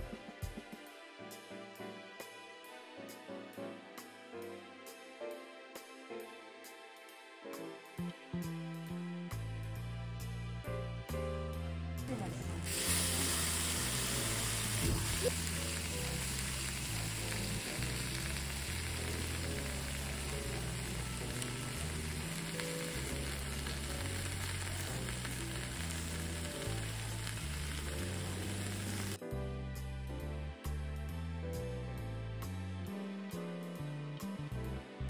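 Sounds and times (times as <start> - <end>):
soft background music: 0.0 - 35.0
hissing sizzle on hot stone: 12.2 - 29.2.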